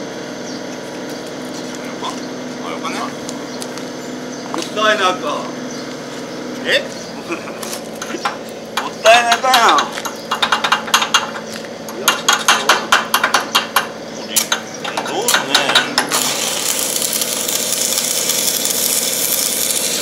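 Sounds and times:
sharp metallic taps: 8.0 - 16.2
arc welding hiss: 15.9 - 20.0.

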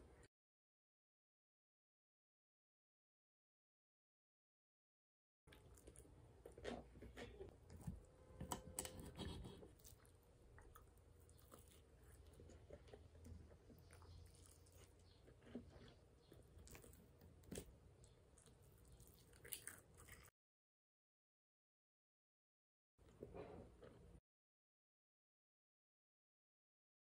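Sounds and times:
faint chewing: 5.5 - 20.3.

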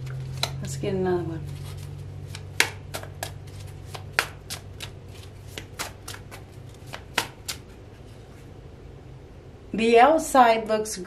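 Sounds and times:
cards being shuffled: 0.0 - 8.5.

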